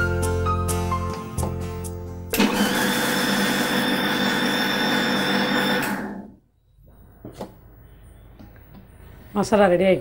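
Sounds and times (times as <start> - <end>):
mixer grinder motor running: 2.3 - 6.3.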